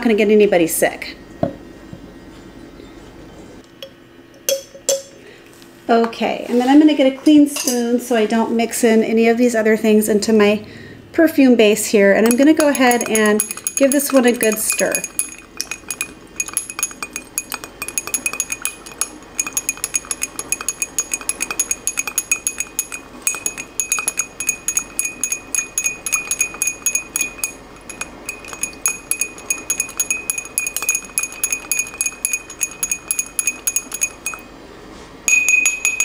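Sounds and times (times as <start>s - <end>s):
spoon clinking in glass: 12.2s - 34.5s, 35.3s - 36.0s.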